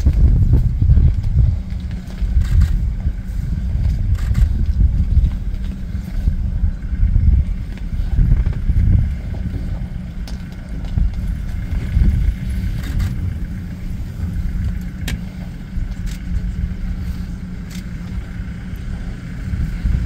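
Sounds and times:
vehicle engine idling: 0.0s - 20.0s.

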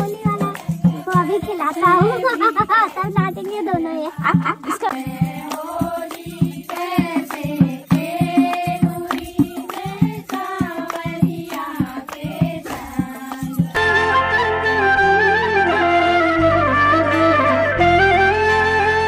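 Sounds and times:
drum strokes: 0.0s - 14.0s
folk dance music with singing: 0.0s - 19.0s
long held notes: 13.8s - 19.0s.

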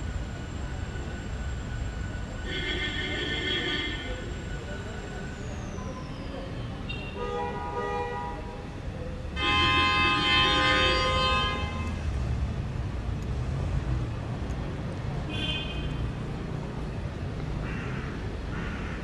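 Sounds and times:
traffic rumble: 0.0s - 19.0s
vehicle horn blaring: 2.5s - 4.1s, 9.4s - 11.9s.

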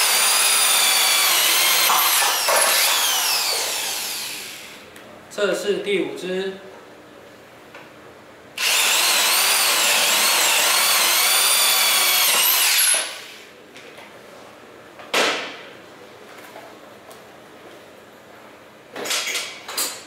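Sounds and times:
electric drill whining: 0.0s - 4.8s, 8.6s - 13.4s.

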